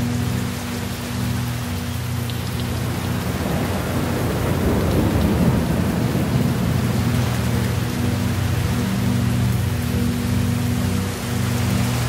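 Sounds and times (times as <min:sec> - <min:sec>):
steady rainfall: 0:00.0 - 0:12.0
thunder rolling: 0:02.8 - 0:08.4.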